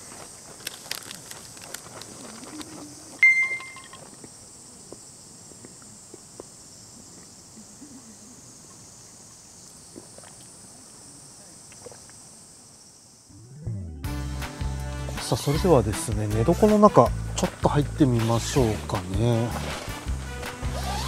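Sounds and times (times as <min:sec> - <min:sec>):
steady high hiss: 0:00.0 - 0:21.0
sharp ringing clink: 0:03.2 - 0:04.0
tableware clinking and knocking: 0:03.2 - 0:04.0.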